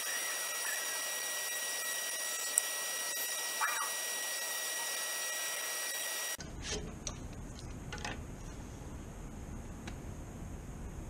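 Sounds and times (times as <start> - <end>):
bandsaw cutting plastic: 0.0 - 6.4
low steady rumble: 6.4 - 11.0.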